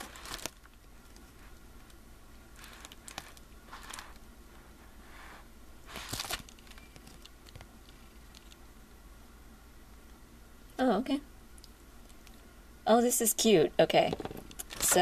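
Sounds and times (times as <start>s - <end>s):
paper and packaging rustling: 0.0s - 1.6s, 2.5s - 4.7s, 5.9s - 8.6s.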